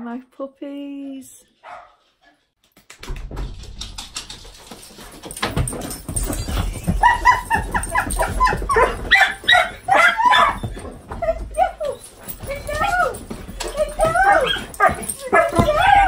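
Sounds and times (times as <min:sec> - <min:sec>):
dogs whining and yipping: 0:04.8 - 0:16.0.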